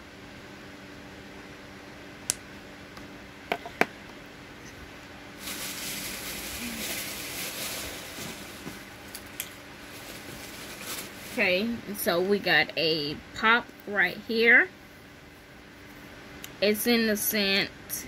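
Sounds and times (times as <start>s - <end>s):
plastic wrapping rustling: 5.4s - 11.8s.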